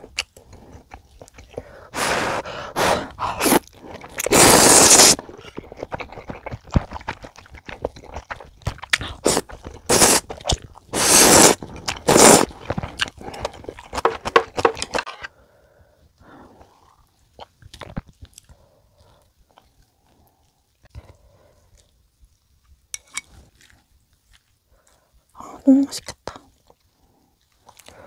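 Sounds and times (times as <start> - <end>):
wet chewing clicks: 0.0 - 1.9, 3.2 - 15.1
noodles slurped loudly: 2.0 - 14.7.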